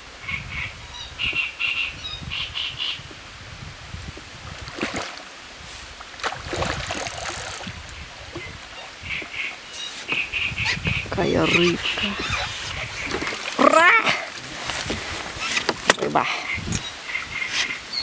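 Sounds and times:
fish thrashing and splashing: 4.4 - 5.3, 6.0 - 10.3, 11.5 - 16.1
bird squawking: 8.4 - 14.0.

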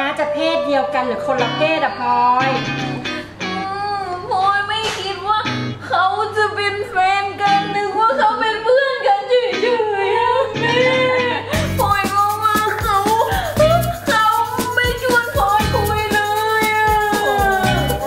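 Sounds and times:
guitar accompaniment: 0.0 - 18.0
person singing: 7.3 - 18.0.

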